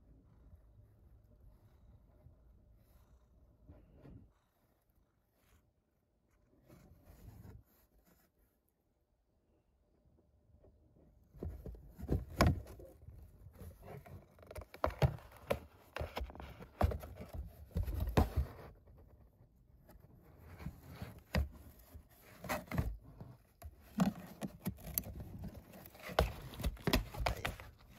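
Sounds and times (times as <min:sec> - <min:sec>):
cat tapping and scraping cardboard: 0:11.3 - 0:19.3, 0:19.9 - 0:27.9.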